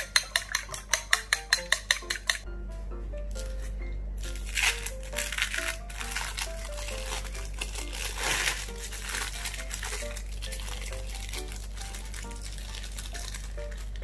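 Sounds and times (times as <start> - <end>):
bouncy background music: 0.0 - 14.0
plastic wrapper crinkling: 3.3 - 14.0.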